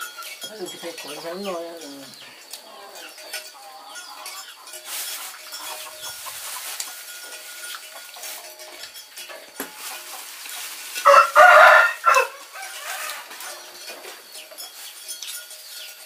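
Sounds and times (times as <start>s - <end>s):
faint bird chirping: 0.4s - 6.8s
rooster crowing: 11.0s - 13.6s.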